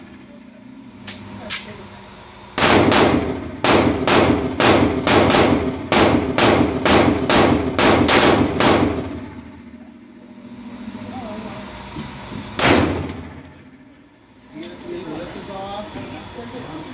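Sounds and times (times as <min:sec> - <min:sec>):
gunshots ringing indoors: 0:02.6 - 0:09.2, 0:12.6 - 0:13.4.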